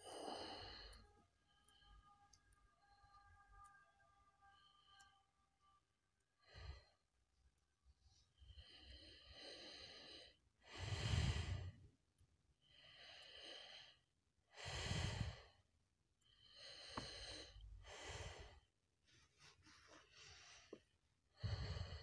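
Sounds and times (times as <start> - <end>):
person breathing slowly: 0.0 - 3.2, 6.4 - 7.2, 8.0 - 11.9, 12.6 - 22.0.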